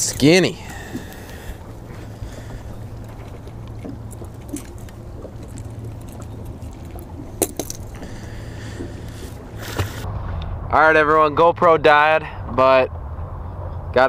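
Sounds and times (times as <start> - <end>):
fishing tackle ticks and clicks: 0.0 - 0.3, 2.4 - 8.1
low hum: 0.0 - 14.0.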